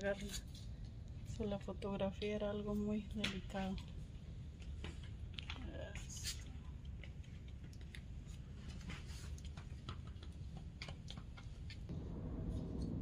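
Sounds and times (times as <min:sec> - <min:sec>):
low indoor rumble: 0:00.0 - 0:13.0
faint clicks and taps: 0:04.6 - 0:11.9.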